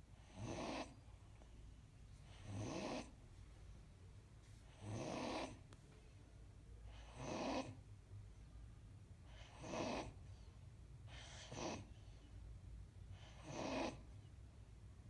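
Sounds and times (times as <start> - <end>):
dog snoring: 0.2 - 1.1, 2.2 - 3.2, 4.7 - 5.6, 6.9 - 7.8, 9.2 - 10.3, 11.1 - 12.2, 13.1 - 14.2.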